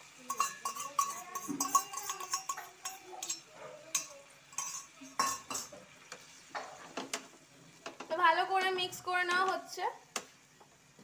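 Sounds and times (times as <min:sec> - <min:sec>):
metal bowl and spoon clinking on wok: 0:00.2 - 0:05.8
wooden spatula stirring: 0:00.2 - 0:08.2.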